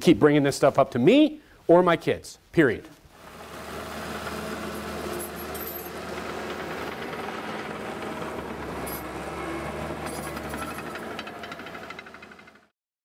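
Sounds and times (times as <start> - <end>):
bulldozer diesel engine running: 3.2 - 12.7.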